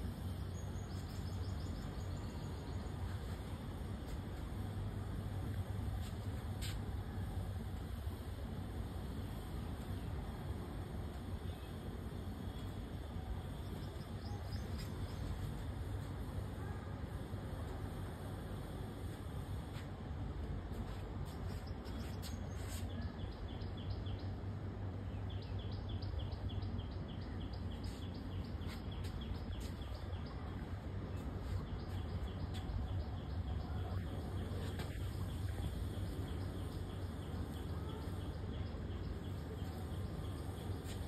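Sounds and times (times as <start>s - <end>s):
steady low hum: 0.0s - 41.0s
bird or insect chirping: 0.1s - 3.4s, 31.4s - 41.0s.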